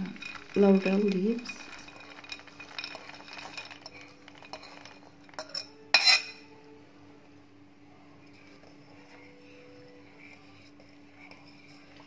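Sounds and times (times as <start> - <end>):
beans clicking as they drop: 0.0 - 5.5
spoon clinking against dishes: 0.0 - 6.6.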